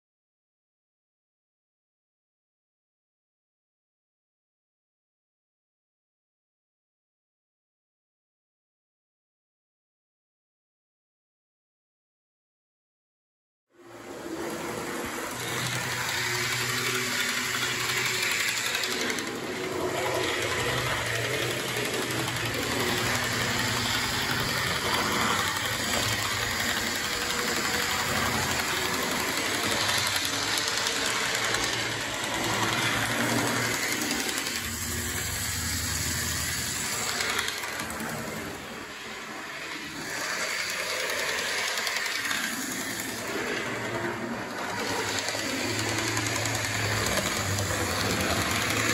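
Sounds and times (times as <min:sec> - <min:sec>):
model train motor whirring: 0:13.8 - 0:48.9
mechanical rattle: 0:15.0 - 0:38.5, 0:44.6 - 0:48.9.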